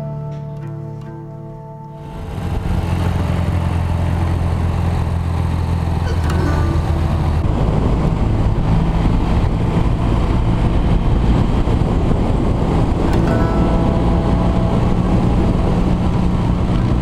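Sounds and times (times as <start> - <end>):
motorcycle engine running: 2.0 - 17.0
wind rush on microphone: 2.0 - 17.0.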